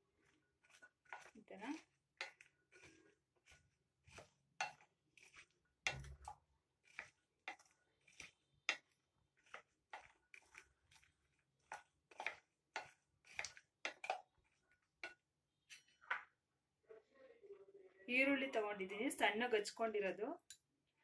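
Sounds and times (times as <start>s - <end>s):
spatula stirring in glass bowl: 0.0s - 16.1s.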